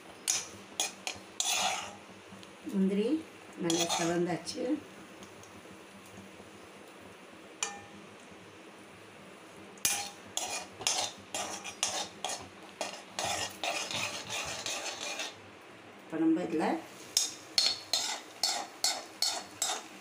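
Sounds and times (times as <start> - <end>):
nuts sizzling in ghee: 0.0 - 20.0
steel spoon scraping pan: 0.3 - 2.0, 3.7 - 4.2, 9.9 - 15.4, 17.1 - 20.0.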